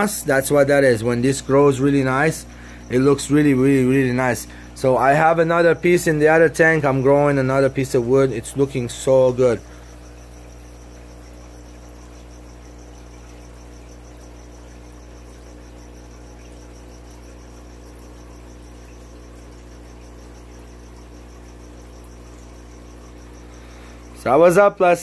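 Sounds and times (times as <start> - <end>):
faint high pulsing chirp: 0.0 - 25.0
low electrical hum: 0.0 - 25.0.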